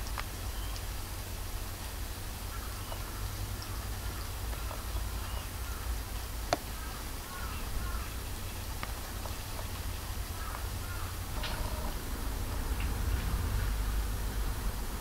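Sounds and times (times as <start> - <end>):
faint birds chirping: 2.5 - 6.0.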